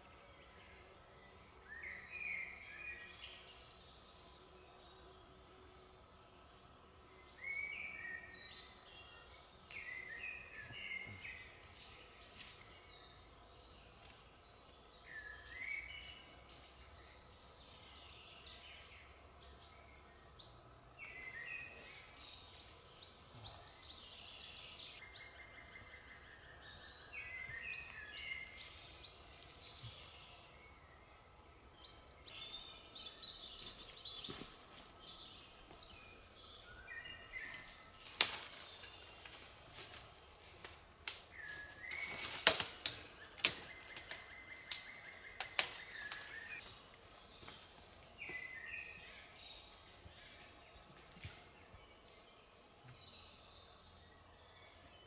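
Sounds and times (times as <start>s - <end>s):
songbirds singing: 0.0s - 55.0s
sharp snaps: 40.6s - 41.3s, 42.4s - 46.4s.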